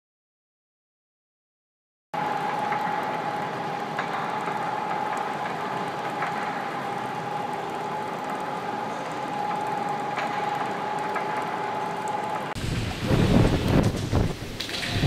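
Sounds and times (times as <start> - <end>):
machine hum with high whine: 2.2 - 15.0
faint clicks: 2.4 - 12.6.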